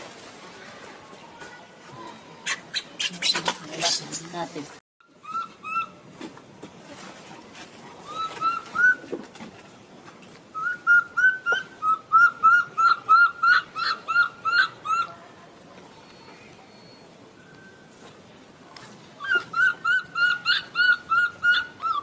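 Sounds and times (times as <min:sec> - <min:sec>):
baby monkey squeaking: 0:02.4 - 0:04.2.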